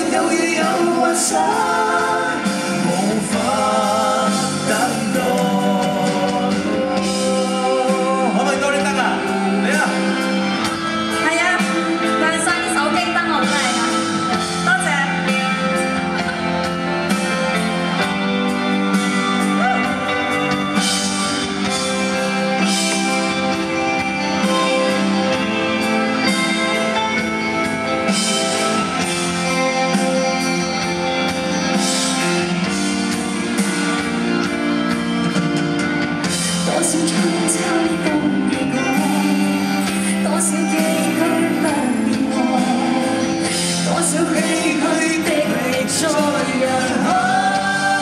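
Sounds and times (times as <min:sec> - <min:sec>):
person singing: 0:00.0 - 0:12.2, 0:36.2 - 0:48.0
live pop band: 0:00.0 - 0:48.0.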